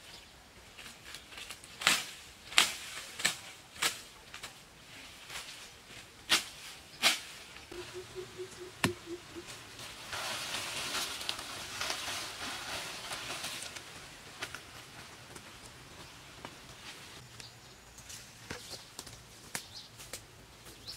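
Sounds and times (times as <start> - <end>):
leaves and stems rustling: 0.1 - 20.9
branches cracking: 9.8 - 15.8.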